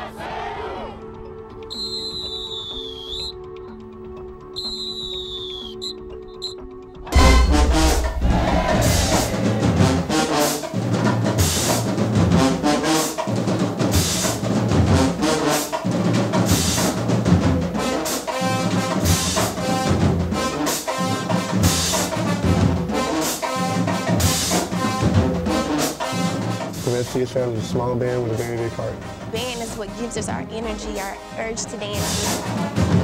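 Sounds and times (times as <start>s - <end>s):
marching band playing: 4.5s - 33.0s
drum and cymbal hits: 7.1s - 28.6s.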